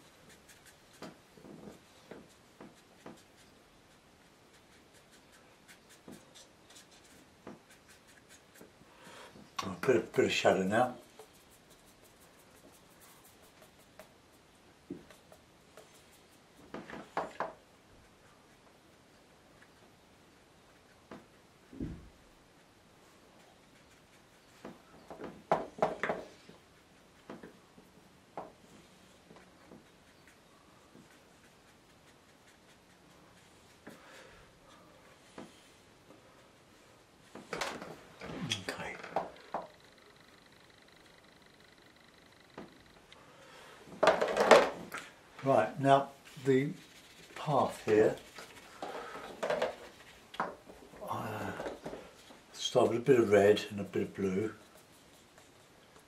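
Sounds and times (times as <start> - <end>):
paintbrush strokes on paper: 0.0 - 25.2, 26.2 - 42.5, 45.1 - 56.0
paintbrush tapping: 0.3 - 8.8, 11.0 - 17.6.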